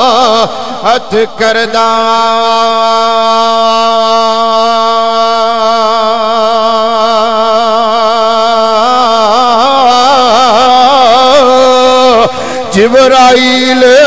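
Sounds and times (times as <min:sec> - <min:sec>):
man chanting over loudspeaker: 0:00.0 - 0:14.0.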